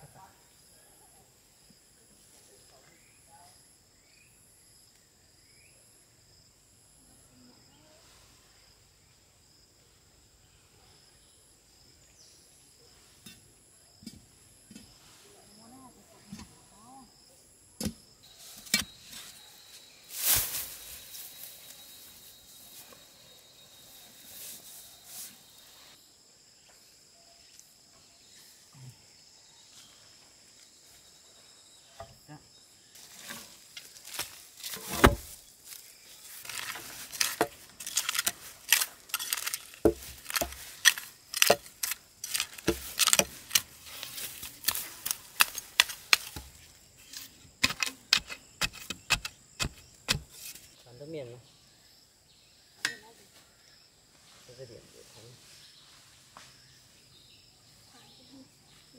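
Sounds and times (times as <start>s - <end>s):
hoe chopping packed earth: 17.8s - 19.4s, 33.1s - 35.4s, 36.4s - 50.7s
heavy thump: 34.9s - 35.3s.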